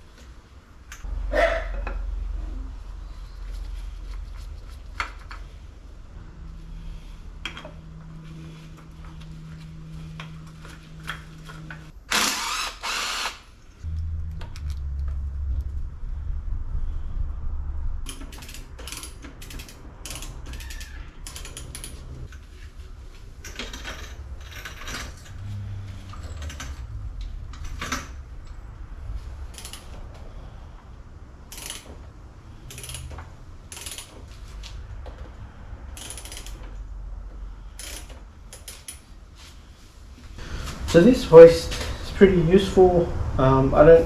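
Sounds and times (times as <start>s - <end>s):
ratchet clicking: 12.1s - 13.4s, 18.1s - 22.2s, 29.5s - 30.0s, 31.5s - 32.0s, 32.6s - 34.2s, 35.9s - 36.8s, 37.8s - 39.0s.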